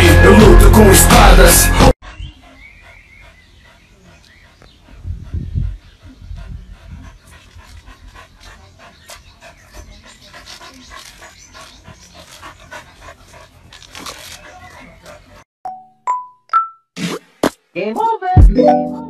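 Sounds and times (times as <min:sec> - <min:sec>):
dog panting: 0:02.0 - 0:15.4.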